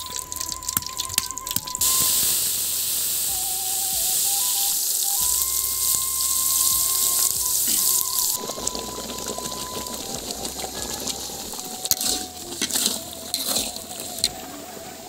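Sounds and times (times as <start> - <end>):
spice paste sizzling in hot oil: 0.0 - 14.3.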